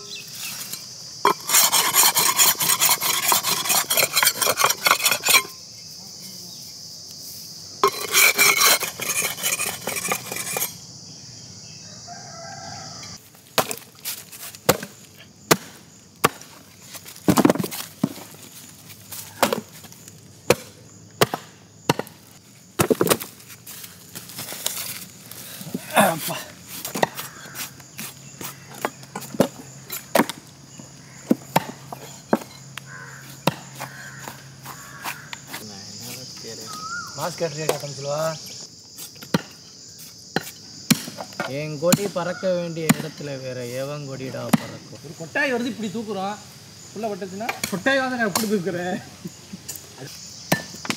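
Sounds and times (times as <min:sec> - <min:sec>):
cleaver chopping on wood: 0:13.6 - 0:13.8, 0:14.6 - 0:16.6, 0:19.4 - 0:19.7, 0:20.5 - 0:22.2, 0:26.8 - 0:30.4, 0:31.2 - 0:32.5, 0:33.4 - 0:35.6, 0:40.4 - 0:42.1.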